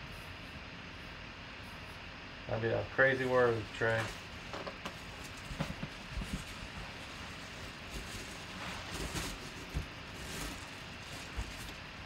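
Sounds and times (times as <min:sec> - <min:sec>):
bubble wrap crinkling: 0:03.8 - 0:12.0.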